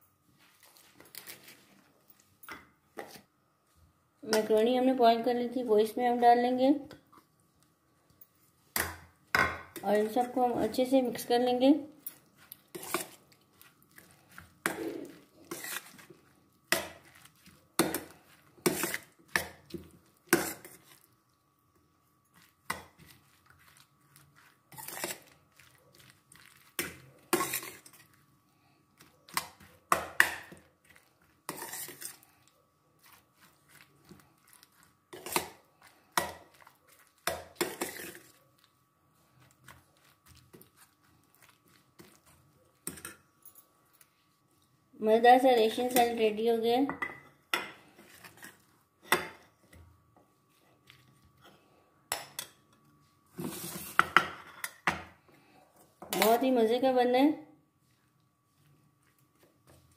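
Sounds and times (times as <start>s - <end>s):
metal spoon scraping glass bowl: 24.7s - 25.3s.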